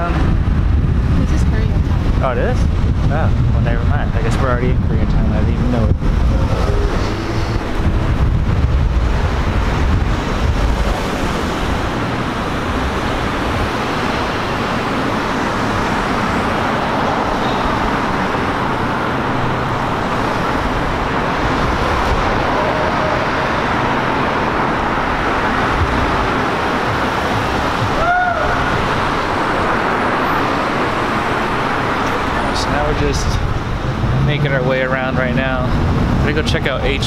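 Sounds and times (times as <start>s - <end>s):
cars driving past: 0.0s - 37.0s
heavy low rumble: 0.0s - 37.0s.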